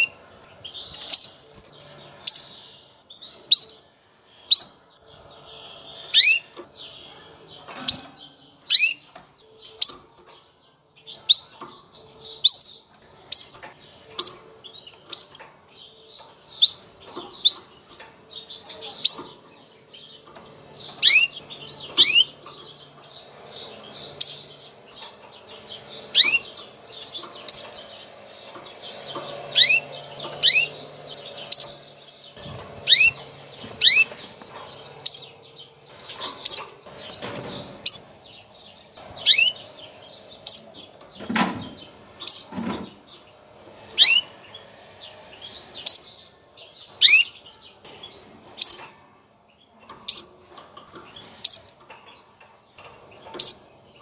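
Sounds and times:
canary chirps: 0.0 - 54.0.

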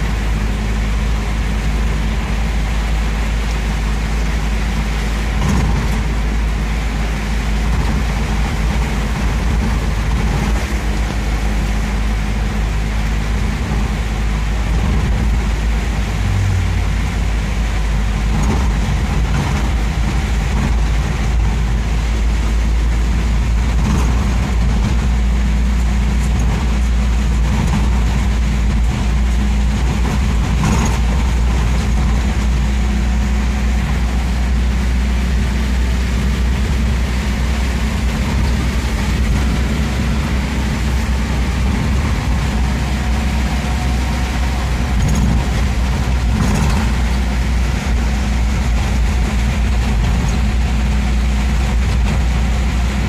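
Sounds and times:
engine and tyres on wet road: 0.0 - 53.0
rain and spray hiss: 0.0 - 53.0.

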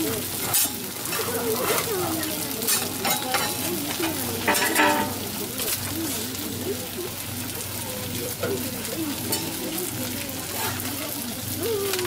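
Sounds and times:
food sizzling on griddle: 0.0 - 12.0
metal spatula scraping griddle: 0.4 - 1.9, 2.6 - 5.2, 9.2 - 9.6, 10.5 - 10.9.

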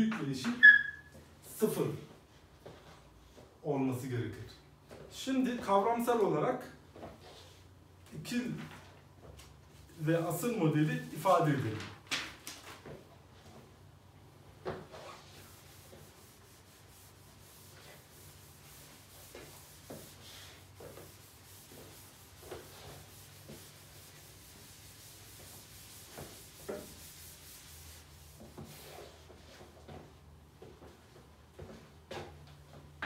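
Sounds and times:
eraser rubbing on chalkboard: 14.9 - 29.3.

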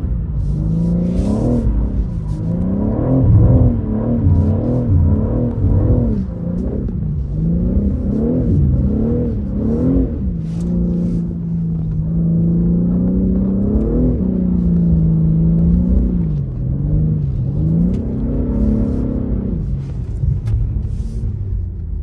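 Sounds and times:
car engine revving: 0.0 - 22.0.

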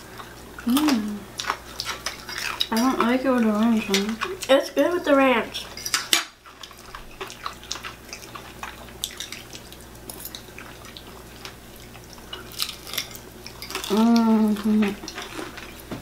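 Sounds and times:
crunching crispy chicken: 5.6 - 15.9
wet chewing smacks: 5.7 - 15.9.

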